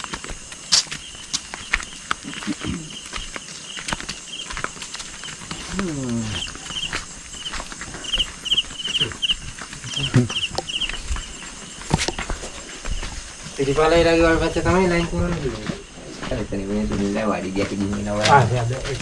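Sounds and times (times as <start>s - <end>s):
footsteps on rocky dirt path: 0.0s - 19.0s
high pulsed chirping: 5.2s - 15.2s
short falling vocal sound: 5.7s - 6.4s.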